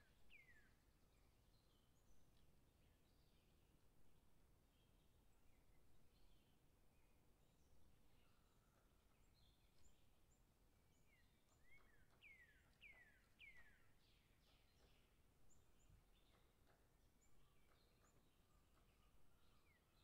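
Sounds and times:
small birds chirping: 4.6s - 20.0s.

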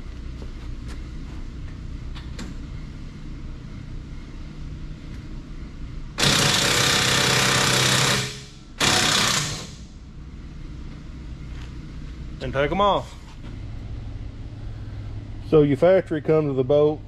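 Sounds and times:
impact wrench hammering: 6.2s - 9.8s.

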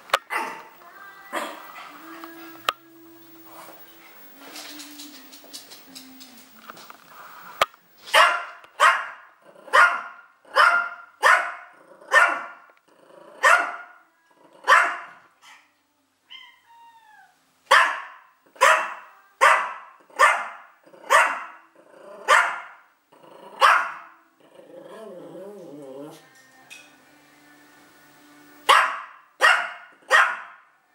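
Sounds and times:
small dog barking: 0.3s - 0.7s, 8.1s - 12.6s, 13.4s - 13.9s, 14.6s - 15.6s, 17.7s - 21.6s, 22.2s - 22.8s, 23.6s - 24.1s, 28.7s - 30.6s.

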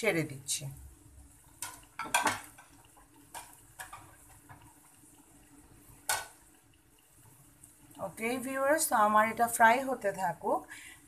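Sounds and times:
chicken deep-frying in oil: 0.0s - 11.0s
utensil clattering against frying pan: 1.6s - 4.6s.

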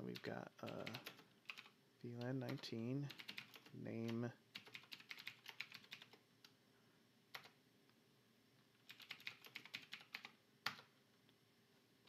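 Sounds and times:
computer keyboard typing: 0.1s - 6.2s, 7.3s - 7.6s, 8.8s - 10.9s.

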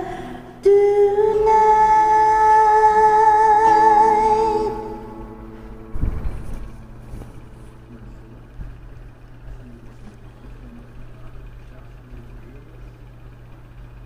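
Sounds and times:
woman singing with vibrato: 0.0s - 6.0s
karaoke backing track: 0.0s - 11.3s.

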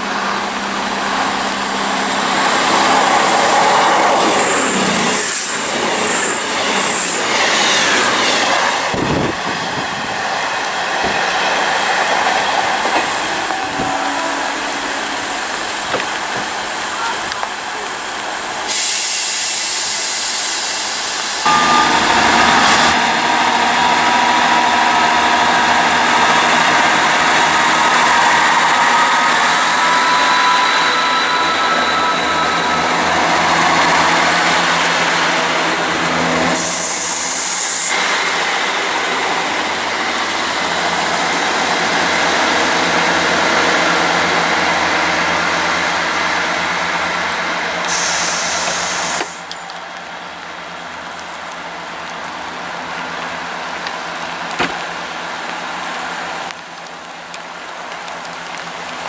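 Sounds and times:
diesel train engines running: 0.0s - 59.0s
train wheels on rail: 0.0s - 59.0s
steady high whine: 20.7s - 41.6s.

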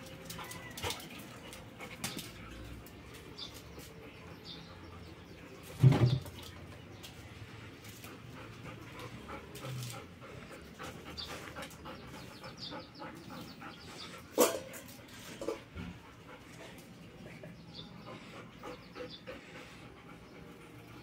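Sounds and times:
dog panting: 0.0s - 5.6s, 6.9s - 21.0s.

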